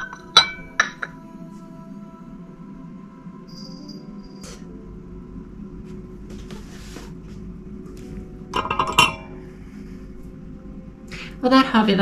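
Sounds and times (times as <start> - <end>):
teacup and saucer clinking: 0.0 - 1.2, 8.6 - 9.3.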